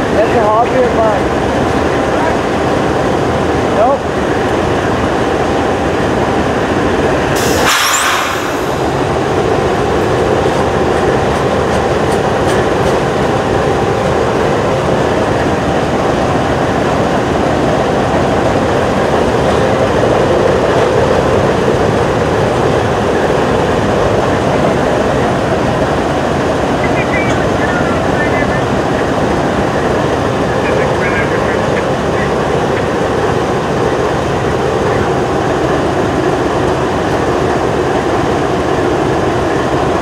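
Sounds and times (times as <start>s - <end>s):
diesel locomotive idling: 0.0s - 40.0s
freight train rumbling past: 0.0s - 40.0s
brief air hiss: 7.4s - 9.0s.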